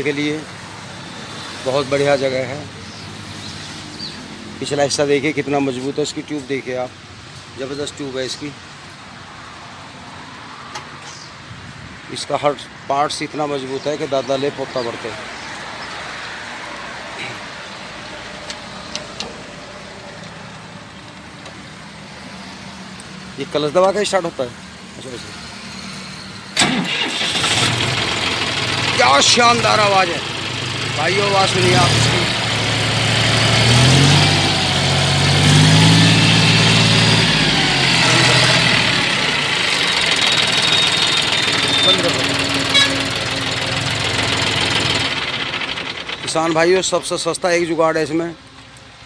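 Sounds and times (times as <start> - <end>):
tractor diesel engine idling: 26.6 - 48.5.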